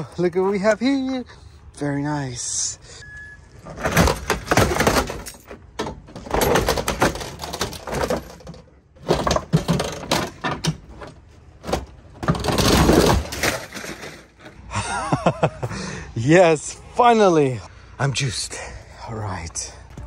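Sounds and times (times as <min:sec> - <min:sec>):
sheet metal cracking and scraping: 0:03.7 - 0:14.6.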